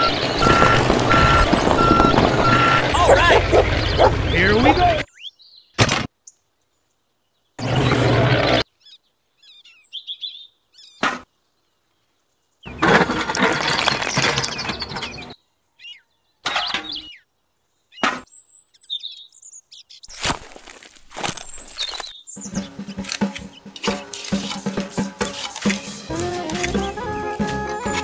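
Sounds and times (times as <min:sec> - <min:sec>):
high bird chirps: 0:00.0 - 0:06.4, 0:14.5 - 0:20.2, 0:21.4 - 0:24.4
toy cement mixer handling noise: 0:12.7 - 0:15.4, 0:23.0 - 0:28.0.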